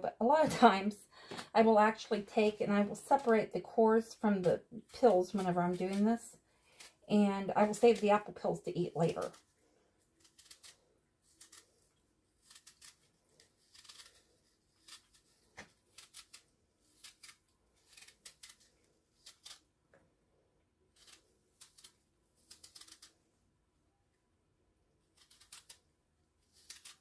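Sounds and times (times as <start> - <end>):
knife peeling apple skin: 6.6 - 8.2, 9.0 - 19.8, 20.9 - 23.3, 25.0 - 27.0.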